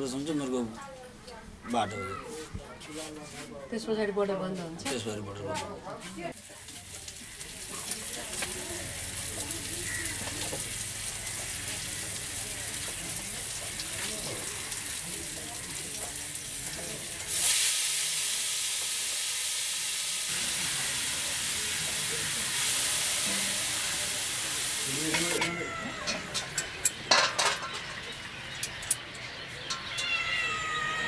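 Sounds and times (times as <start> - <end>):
cabbage sizzling in hot oil: 6.3 - 25.4.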